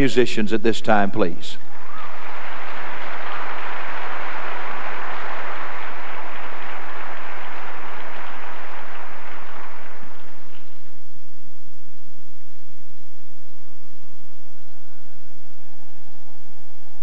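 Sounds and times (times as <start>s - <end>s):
crowd applauding: 1.6s - 11.0s.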